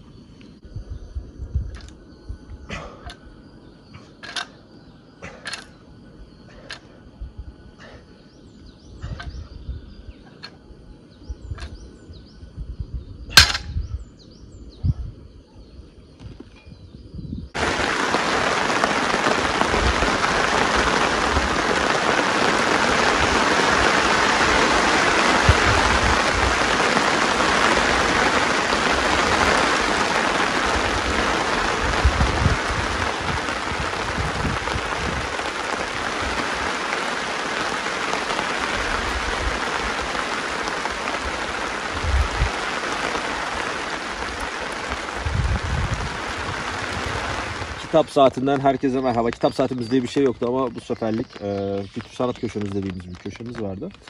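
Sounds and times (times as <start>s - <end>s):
steady rain: 17.5s - 54.0s.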